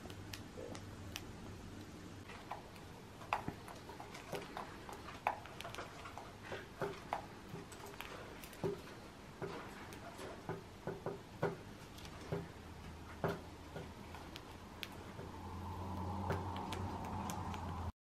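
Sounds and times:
birds' beaks tapping at seed: 13.1 - 17.9.

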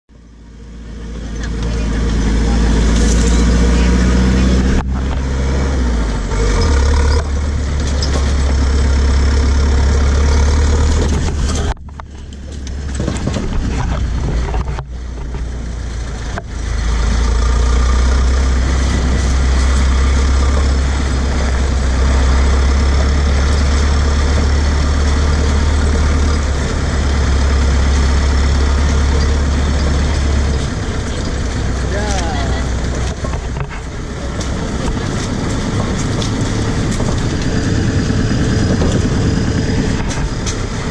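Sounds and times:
vehicle engine and road rumble: 0.1 - 40.9.

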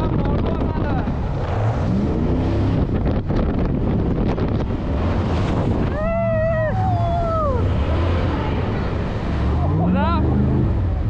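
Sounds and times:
boat engine: 0.0 - 11.0
rushing water: 0.0 - 11.0
wind buffeting microphone: 0.0 - 11.0
high voice crying out: 5.9 - 7.7.

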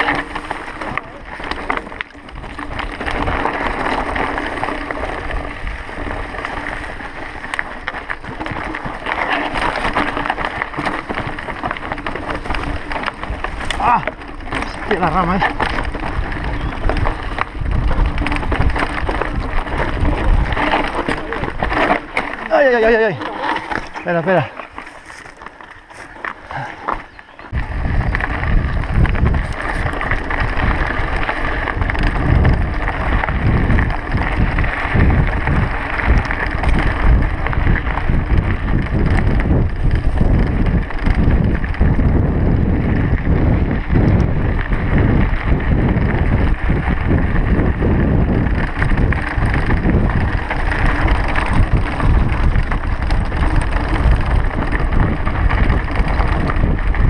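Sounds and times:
tyres crunching over stones: 0.0 - 41.8
bike rattling: 0.0 - 57.0
wind buffeting microphone: 0.0 - 57.0.

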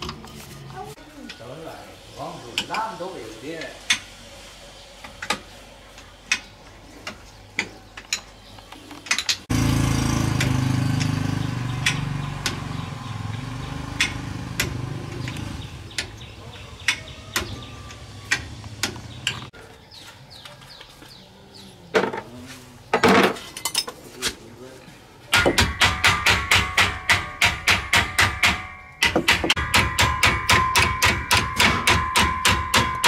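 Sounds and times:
loud steady engine hum: 9.5 - 16.4
metal tools clinking: 23.1 - 24.0.

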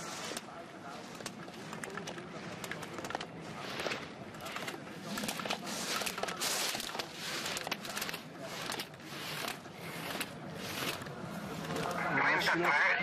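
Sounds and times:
skis scraping icy snow: 0.0 - 1.1, 3.4 - 12.0.

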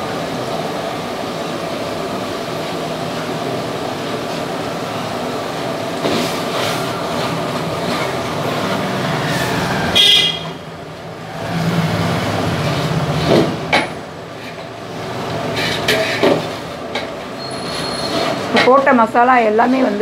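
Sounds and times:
traffic roar: 0.0 - 20.0
horn toot: 9.3 - 10.6.

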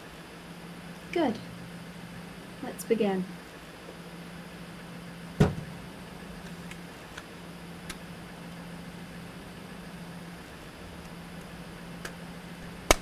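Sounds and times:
steady low hum: 0.0 - 13.0
heavy thump: 5.4 - 5.8.

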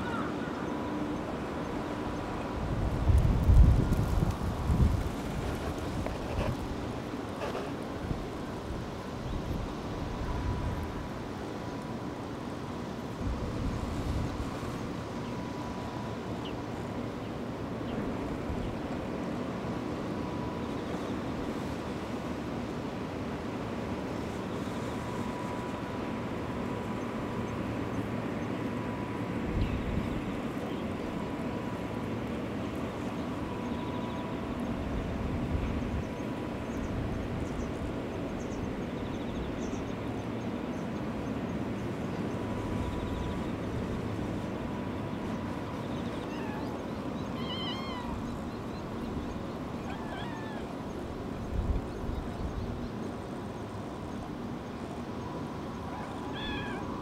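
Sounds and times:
low rumble and hiss: 0.0 - 57.0
kittens meowing: 46.3 - 46.7, 47.4 - 48.3, 49.8 - 50.8, 55.9 - 56.9.

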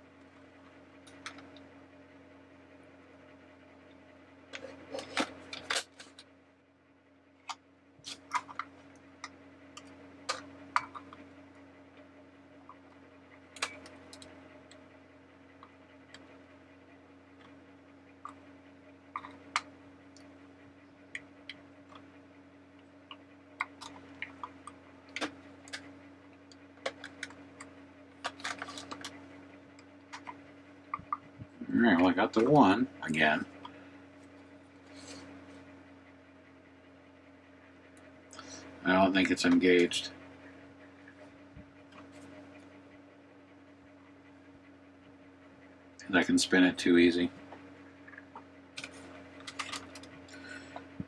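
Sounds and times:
faint steady hum: 0.0 - 51.0
plastic parts clicking and tapping: 26.5 - 29.2, 48.8 - 50.1.

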